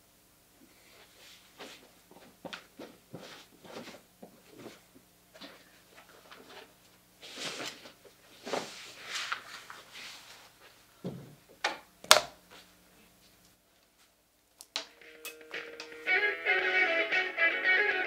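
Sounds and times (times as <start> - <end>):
clothes rustling: 1.0 - 10.9.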